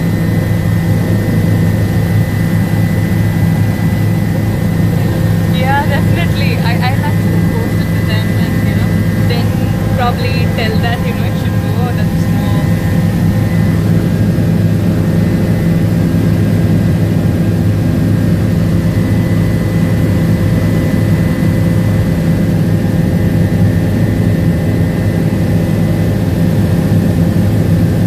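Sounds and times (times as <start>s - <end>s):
high whine: 0.0s - 23.8s
helicopter engine and rotor drone: 0.0s - 28.0s.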